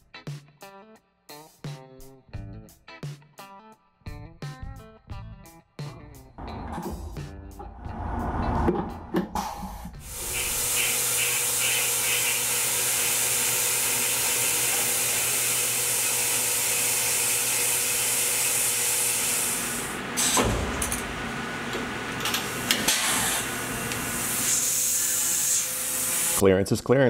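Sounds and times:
cnc mill cutting aluminium: 0:10.0 - 0:20.4
coolant spray hiss: 0:10.0 - 0:20.5, 0:22.6 - 0:26.4.

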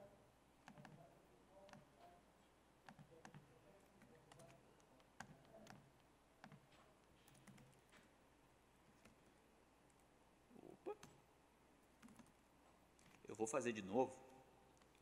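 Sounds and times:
laptop keyboard typing: 0:00.6 - 0:02.0, 0:02.8 - 0:08.1, 0:08.9 - 0:09.3, 0:11.8 - 0:12.4.

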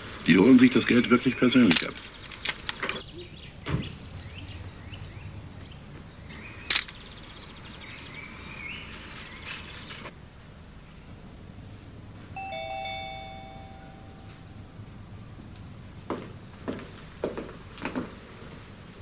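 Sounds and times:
birds chirping: 0:00.0 - 0:10.1.

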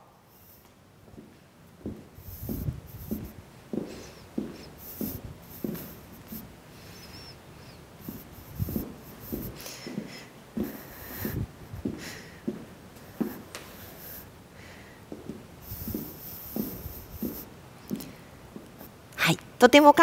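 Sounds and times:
shoe soles scuffing: 0:00.3 - 0:14.3, 0:15.1 - 0:19.0
footsteps on wooden floor: 0:01.1 - 0:06.5, 0:08.0 - 0:13.8, 0:15.1 - 0:18.8.

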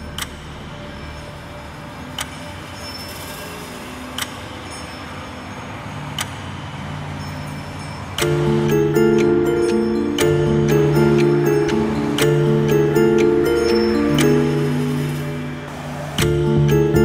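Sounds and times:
pitched music notes: 0:08.2 - 0:17.0
steady rushing hiss: 0:13.2 - 0:16.7.

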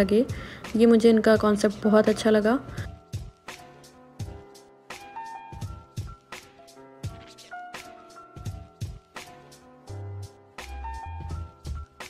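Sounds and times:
background music with a beat: 0:02.8 - 0:12.0.

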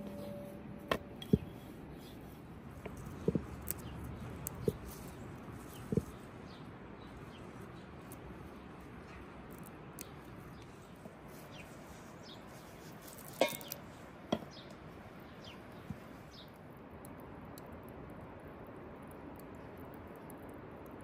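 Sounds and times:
faint bird chirps: 0:00.0 - 0:02.3.

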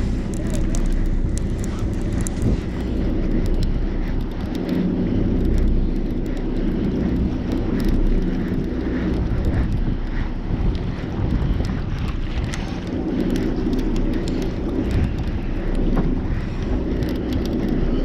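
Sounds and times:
fishing reel ticking: 0:00.0 - 0:18.0
wind buffeting microphone: 0:00.0 - 0:18.0.

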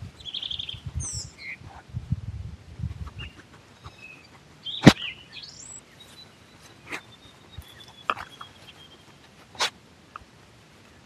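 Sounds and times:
birds chirping: 0:00.1 - 0:01.7, 0:03.0 - 0:09.7.

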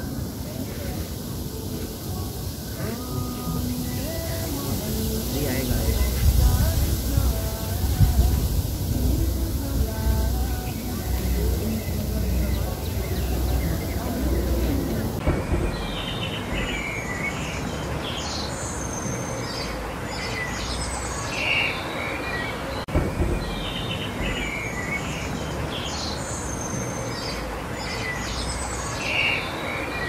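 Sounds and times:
small birds chirping and trilling: 0:00.0 - 0:30.0
low background rumble: 0:04.9 - 0:16.8.

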